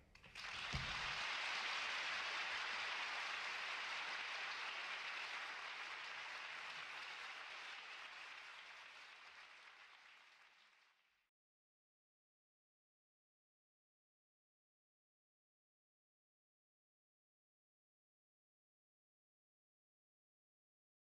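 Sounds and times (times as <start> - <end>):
audience applause: 0.2 - 11.1.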